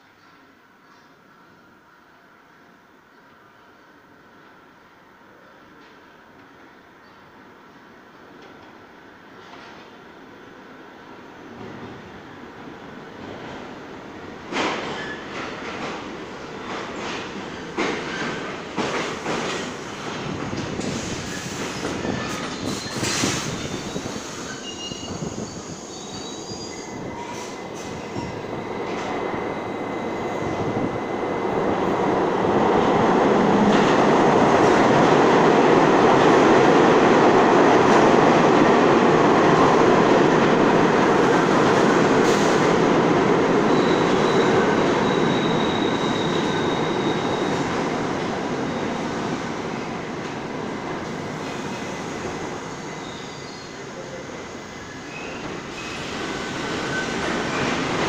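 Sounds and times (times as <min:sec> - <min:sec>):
train wheels rumbling on rails: 0:13.1 - 0:54.3
train wheel squeals: 0:14.7 - 0:15.4, 0:20.8 - 0:31.4, 0:43.6 - 0:47.8, 0:52.6 - 0:58.0.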